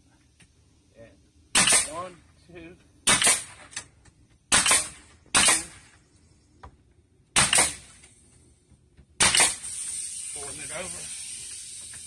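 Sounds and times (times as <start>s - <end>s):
pneumatic nail gun firing: 1.5s - 2.0s, 3.1s - 3.9s, 4.5s - 5.8s, 7.4s - 8.2s, 9.2s - 12.0s.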